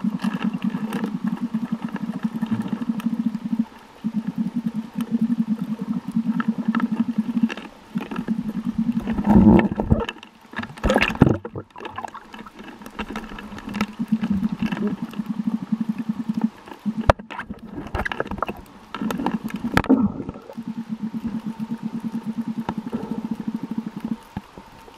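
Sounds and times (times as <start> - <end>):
water splashing and bubbling: 0.0 - 24.9
underwater boat motor buzz: 12.3 - 17.3, 18.9 - 24.4.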